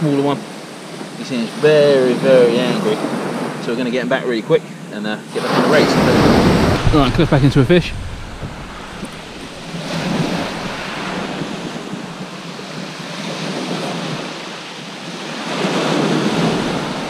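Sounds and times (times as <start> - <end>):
waves breaking on shingle beach: 5.3 - 17.0.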